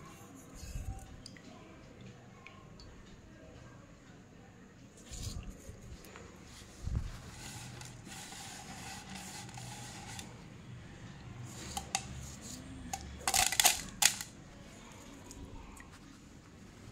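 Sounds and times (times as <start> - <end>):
slate crumbling by hand: 12.9 - 14.3.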